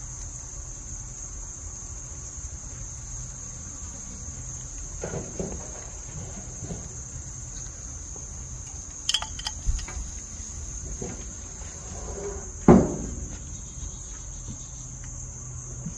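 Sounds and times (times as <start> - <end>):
crickets chirring: 0.0 - 15.9
sharp clicks: 8.7 - 10.0.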